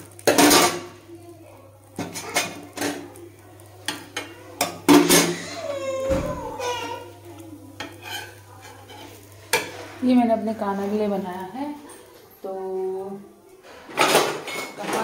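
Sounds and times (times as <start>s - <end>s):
metal spatula scraping a griddle: 7.8s - 11.1s.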